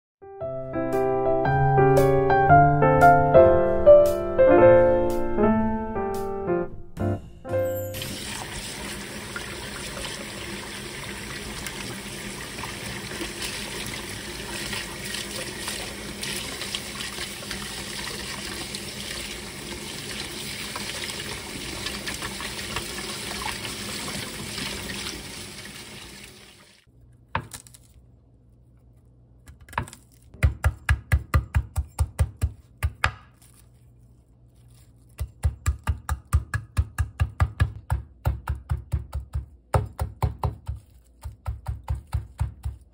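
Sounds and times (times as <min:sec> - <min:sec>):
knife chopping on wooden board: 0:29.5 - 0:33.6, 0:35.1 - 0:42.9.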